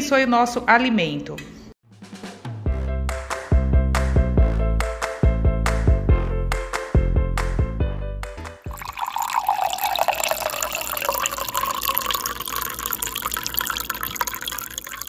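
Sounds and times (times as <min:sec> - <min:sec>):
water pouring into a glass: 0:08.7 - 0:15.0.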